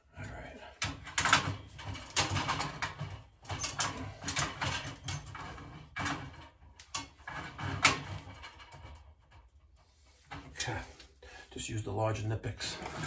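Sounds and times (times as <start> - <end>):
metal grating on metal threads: 0.8 - 10.9, 12.6 - 13.0.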